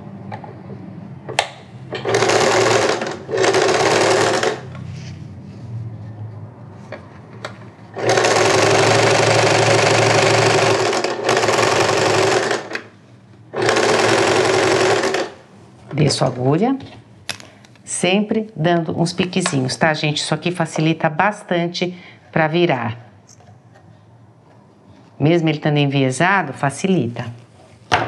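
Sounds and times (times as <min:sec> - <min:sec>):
sewing machine stitching: 0:01.9 - 0:04.6, 0:07.9 - 0:12.9, 0:13.5 - 0:15.4.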